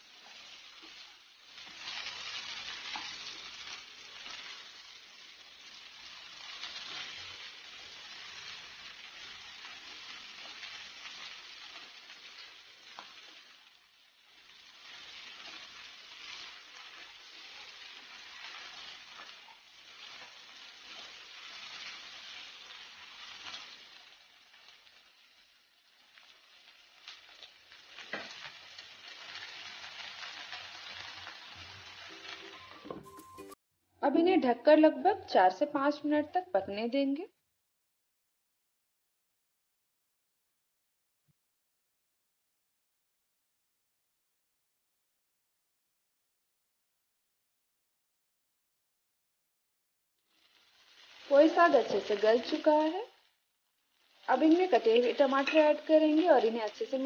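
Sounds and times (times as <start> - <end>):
vegetables sizzling in oil: 0.0 - 33.6, 34.7 - 37.2, 50.2 - 57.0
spatula scraping pan: 55.0 - 55.8.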